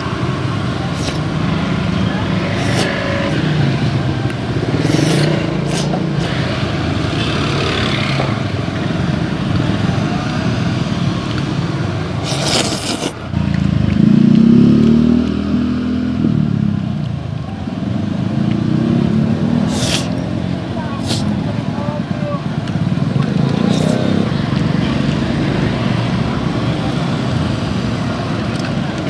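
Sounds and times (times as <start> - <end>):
motorbikes going past: 0.0 - 17.1, 17.8 - 29.0
roadside traffic: 0.0 - 29.0
short hiss: 19.7 - 20.1.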